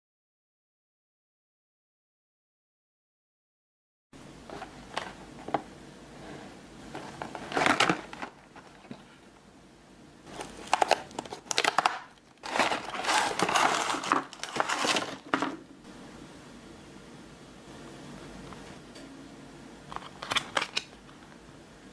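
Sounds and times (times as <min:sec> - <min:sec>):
cardboard packaging crinkling: 0:06.9 - 0:09.1, 0:10.3 - 0:15.6.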